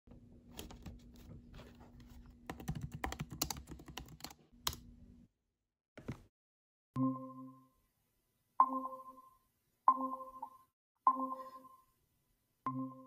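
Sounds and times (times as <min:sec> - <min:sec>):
laptop keyboard typing: 0:02.0 - 0:04.9.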